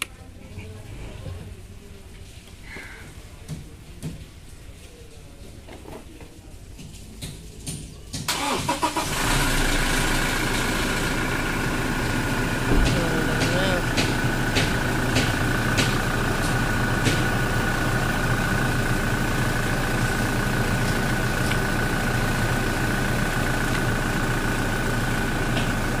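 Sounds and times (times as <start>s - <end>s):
car engine idling: 8.3s - 26.0s.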